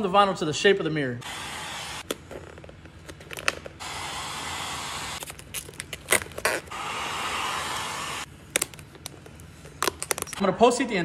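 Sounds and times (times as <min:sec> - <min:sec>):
heat gun blowing: 0:01.2 - 0:02.1, 0:03.8 - 0:05.2, 0:06.4 - 0:08.3
vinyl film crinkling: 0:05.2 - 0:06.7, 0:08.4 - 0:10.4.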